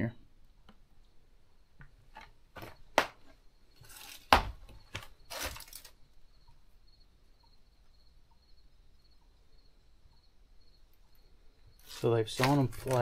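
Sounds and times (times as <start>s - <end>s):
footsteps on loose wooden boards: 4.0s - 5.8s.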